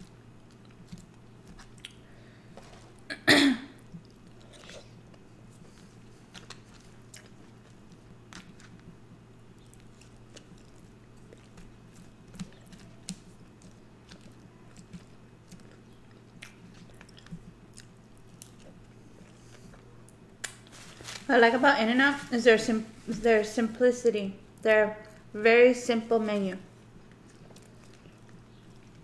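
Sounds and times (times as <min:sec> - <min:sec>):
person chewing food: 0:00.0 - 0:03.1, 0:03.8 - 0:21.0, 0:26.6 - 0:29.0
faint low hum: 0:00.0 - 0:29.0
mouth clicks and smacks: 0:01.6 - 0:02.0.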